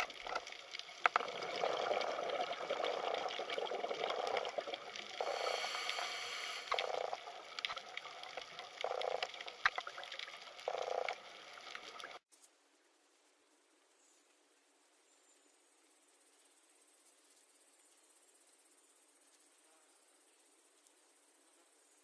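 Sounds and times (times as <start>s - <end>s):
watery hiss: 0.0s - 10.6s
crackling clicks: 0.0s - 12.5s.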